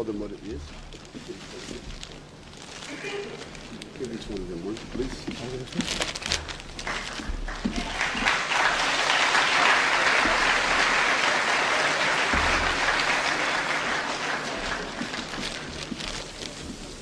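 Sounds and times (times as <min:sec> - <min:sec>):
audience applauding: 0:06.8 - 0:16.4.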